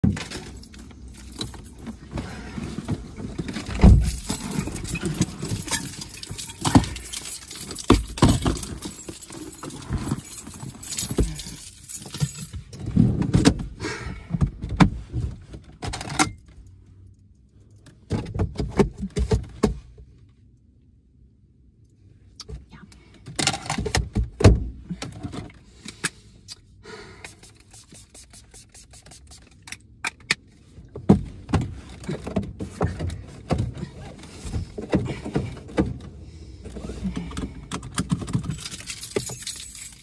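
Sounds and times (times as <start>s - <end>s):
keys jangling: 0.2s - 2.1s, 3.9s - 12.8s, 37.7s - 40.0s.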